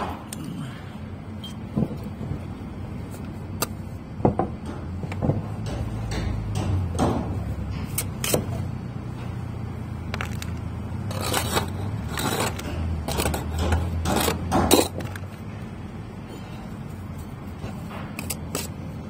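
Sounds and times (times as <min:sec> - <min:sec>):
steady low hum: 0:00.0 - 0:19.0
trowel scraping and tapping mortar: 0:10.2 - 0:15.3, 0:17.5 - 0:18.8.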